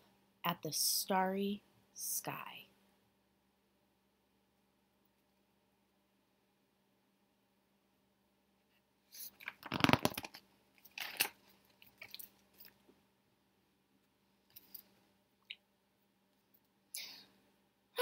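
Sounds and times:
book page rustling: 9.2s - 12.8s.

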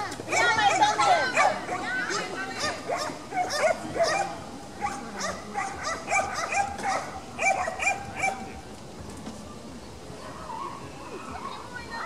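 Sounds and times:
dog barking high-pitched: 2.6s - 8.4s.

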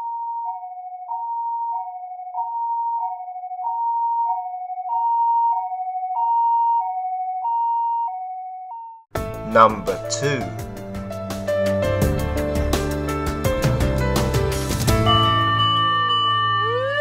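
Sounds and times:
two-tone emergency siren: 0.0s - 9.1s, 15.1s - 17.0s.

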